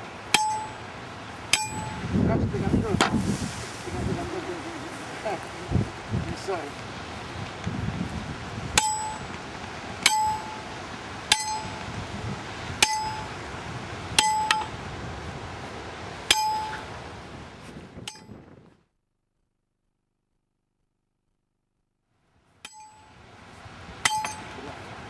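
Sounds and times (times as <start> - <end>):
metal clangs on ground stake: 0.3 - 0.8, 1.5 - 2.0, 8.8 - 9.3, 10.0 - 10.6, 11.3 - 11.8, 12.8 - 13.3, 14.2 - 14.7, 16.3 - 16.9, 18.0 - 18.4, 22.6 - 23.1, 24.0 - 24.6.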